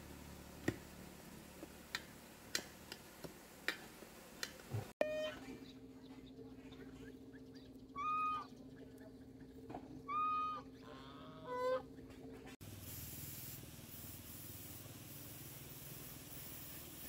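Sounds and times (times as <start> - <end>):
steady low hum: 0.0 - 17.0
fowl honking: 7.9 - 8.5, 10.0 - 12.0
steady hiss: 12.6 - 17.0.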